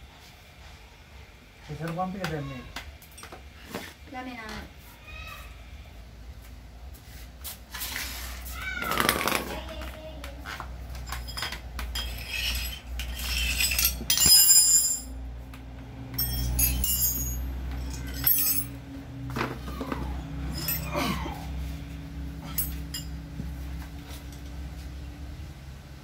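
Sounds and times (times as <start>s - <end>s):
jingling metal clatter: 10.9s - 15.2s, 16.1s - 18.8s, 20.4s - 21.2s, 22.4s - 23.2s
metal tools clinking on workbench: 10.9s - 15.2s, 16.1s - 18.8s, 20.5s - 21.2s, 22.4s - 23.2s.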